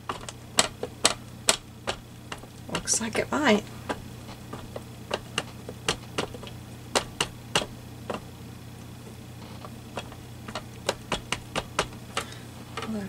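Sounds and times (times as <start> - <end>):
ink pad tapping on stamp: 0.0 - 3.2, 3.8 - 8.3, 9.9 - 13.0
low steady hum: 0.0 - 13.0.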